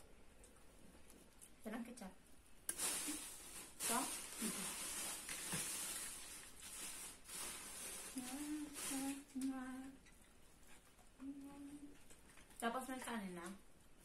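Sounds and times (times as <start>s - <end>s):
food crackling and rustling: 2.6s - 14.0s
person humming: 8.2s - 10.0s, 11.2s - 11.9s.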